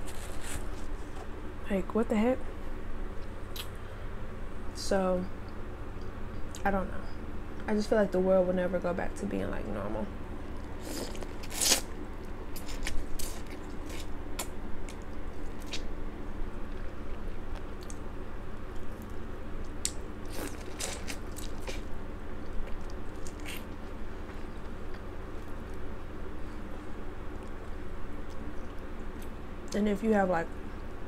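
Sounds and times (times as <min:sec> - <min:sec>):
crunchy chewing of corn: 0:00.0 - 0:01.3, 0:10.5 - 0:29.4
low steady hum: 0:00.0 - 0:31.0.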